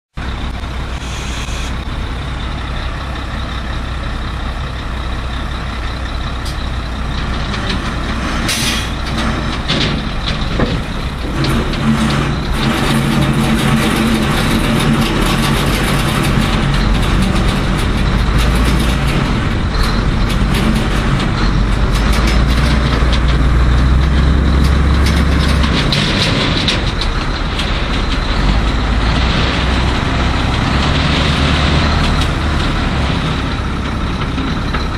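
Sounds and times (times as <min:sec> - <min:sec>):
truck diesel engine working: 0:00.1 - 0:34.9
short sharp hiss: 0:00.9 - 0:01.8.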